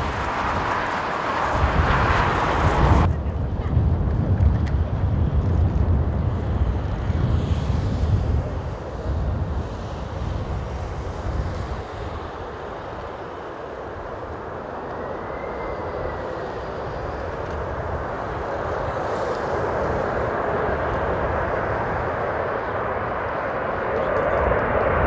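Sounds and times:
jet engine rush: 0.0 - 25.0.

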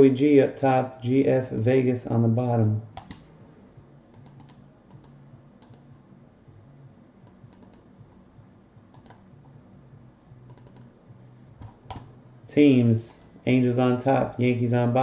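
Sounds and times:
faint low hum: 0.0 - 15.0
mouse and keyboard clicks: 2.5 - 3.2, 4.1 - 5.9, 7.2 - 7.9, 8.9 - 9.2, 10.5 - 10.9.

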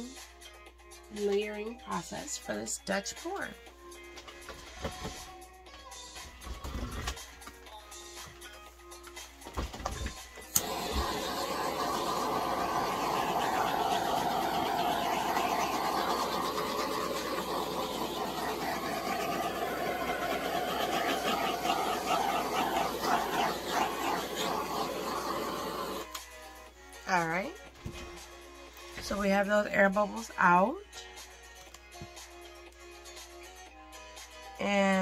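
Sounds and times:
heat tool rushing: 10.5 - 26.1.

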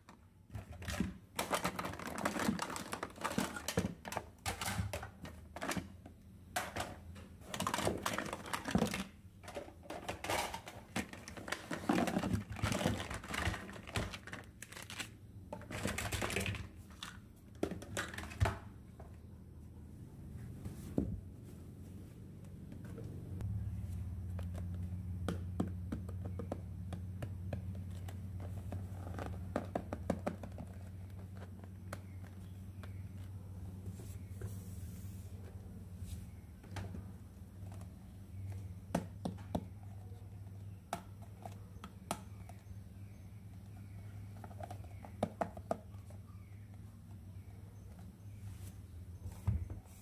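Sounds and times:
steady low hum: 18.7 - 29.5.

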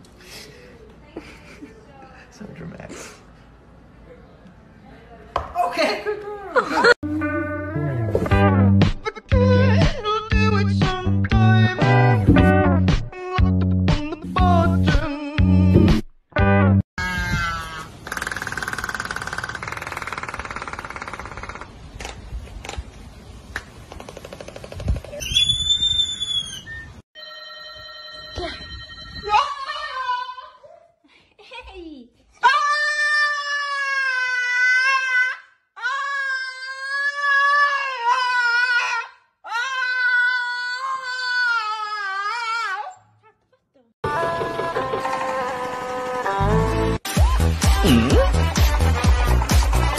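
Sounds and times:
albatross bills clacking: 18.0 - 22.2.

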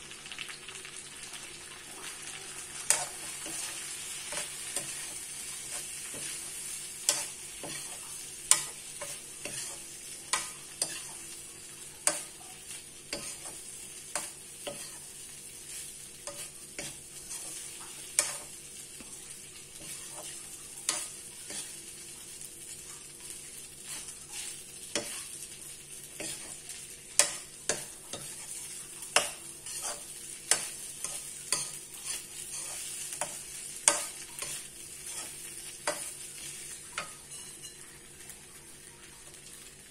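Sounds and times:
rice sizzling in a wok: 0.0 - 39.9
spatula scraping and knocking wok: 2.8 - 38.1.

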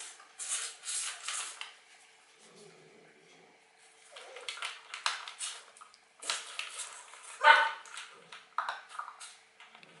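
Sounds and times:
puppies crunching kibble: 3.8 - 10.0
puppy barking: 7.4 - 7.9.

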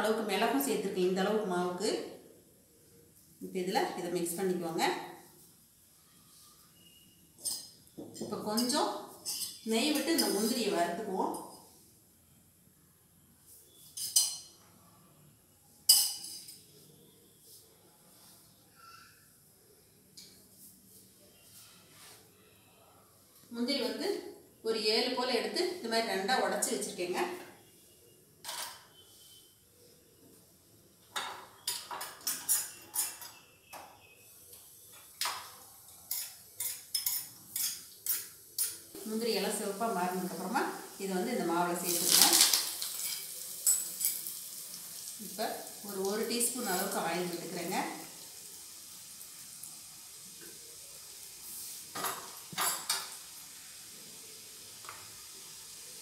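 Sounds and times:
faint steady hiss: 0.0 - 56.0
metal spoon scraping a pan: 8.5 - 10.6, 31.6 - 34.2, 36.0 - 39.0, 42.8 - 44.4
metal utensils clattering: 31.2 - 33.5, 42.6 - 44.3.

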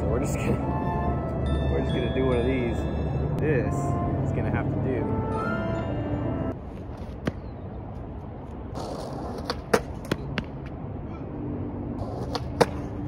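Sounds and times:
skateboard wheels rumbling on concrete: 8.7 - 10.6, 12.0 - 13.0
skateboard clicks and knocks: 8.8 - 10.6, 12.0 - 13.0.

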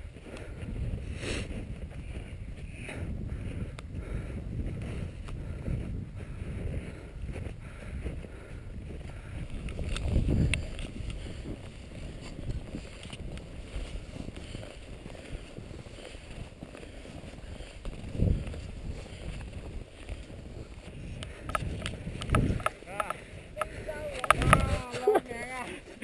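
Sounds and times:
wind buffeting microphone: 0.0 - 26.0
boots crunching through snow: 9.1 - 23.3.

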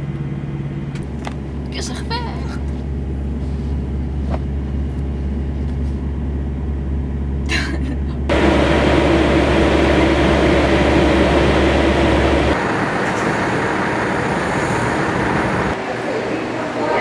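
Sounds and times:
truck diesel engine idling: 8.2 - 16.9
open-air rushing hiss: 8.3 - 17.0.

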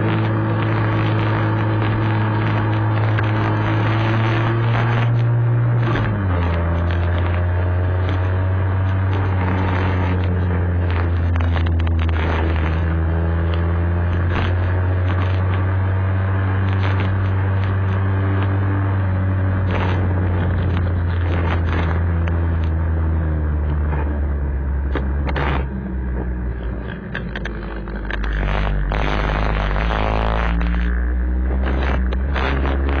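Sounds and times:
scooter engine running: 0.0 - 33.0
clicks: 24.9 - 33.0.

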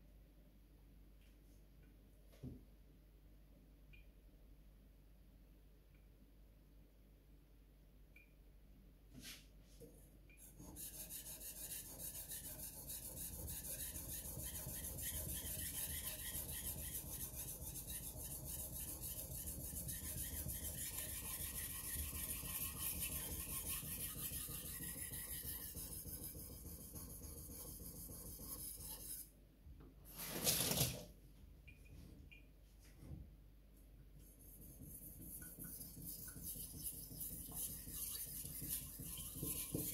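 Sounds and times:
knife scraping on whetstone: 10.6 - 26.4.

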